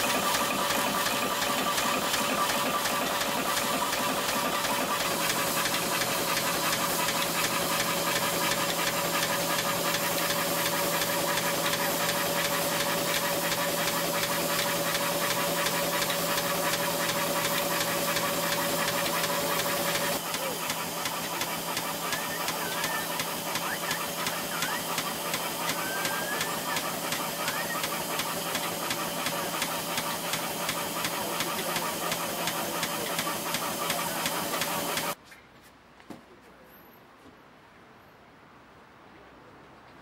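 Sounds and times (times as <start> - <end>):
steam engine beating: 0.0 - 35.2
steam hiss: 0.0 - 35.2
steady whine: 17.4 - 35.2.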